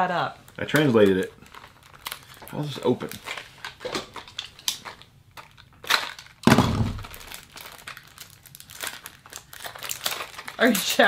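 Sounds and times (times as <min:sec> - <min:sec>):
cardboard wrapping rustling: 0:00.5 - 0:11.0
loud crack-like thump: 0:06.4 - 0:07.3.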